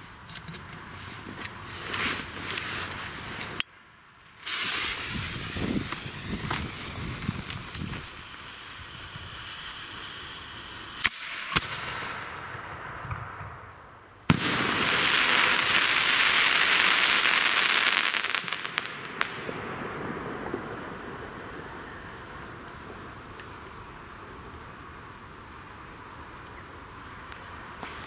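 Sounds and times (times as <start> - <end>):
dense firework crackling: 4.3 - 28.0
hissing fuse: 4.4 - 11.2.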